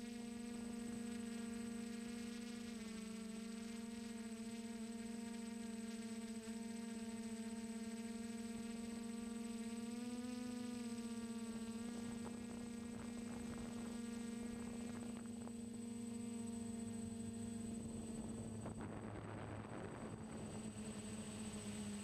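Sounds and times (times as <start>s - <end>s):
drone motors buzzing: 0.4s - 22.0s
wind noise: 17.9s - 20.7s.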